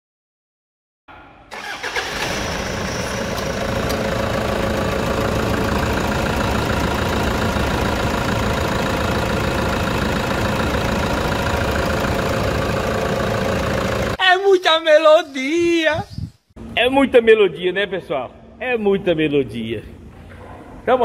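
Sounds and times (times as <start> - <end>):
diesel engine idling: 1.6 - 14.2.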